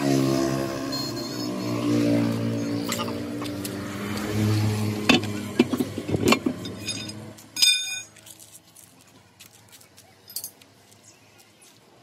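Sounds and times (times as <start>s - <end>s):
metal-on-metal clank: 5.1s - 8.1s
light metal clink: 6.6s - 8.1s, 10.3s - 10.6s.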